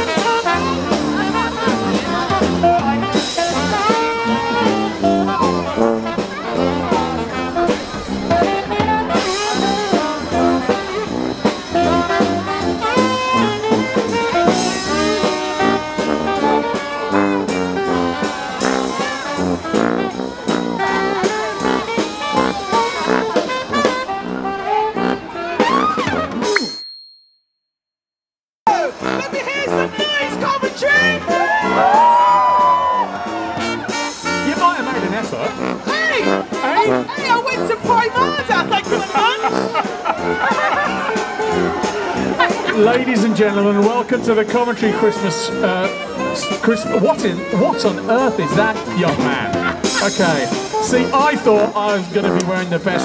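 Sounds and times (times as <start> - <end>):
brass band playing: 0.0 - 26.6, 28.7 - 53.0
sousaphone bass line: 37.9 - 53.0.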